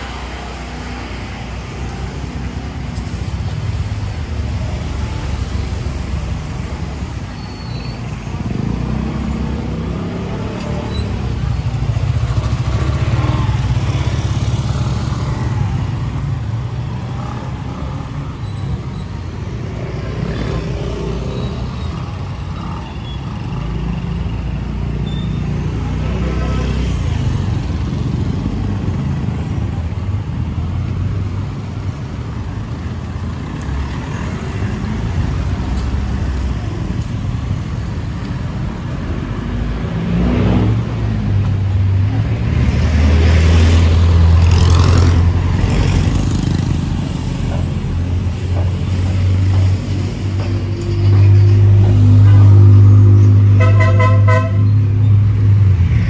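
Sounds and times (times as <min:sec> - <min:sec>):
vehicles passing: 0:00.0 - 0:56.0
motorcycle engines running: 0:08.3 - 0:18.4, 0:19.4 - 0:53.5.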